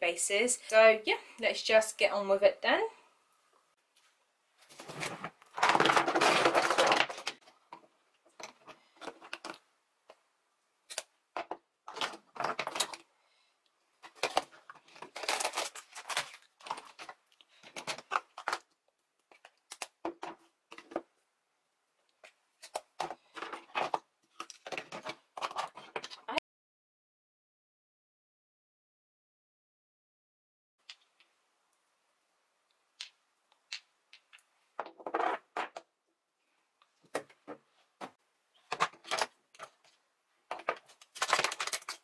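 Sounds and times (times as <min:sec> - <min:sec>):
plastic makeup items clattering: 0:04.8 - 0:09.6, 0:10.9 - 0:13.1, 0:14.0 - 0:21.1, 0:22.2 - 0:26.3, 0:37.1 - 0:42.0.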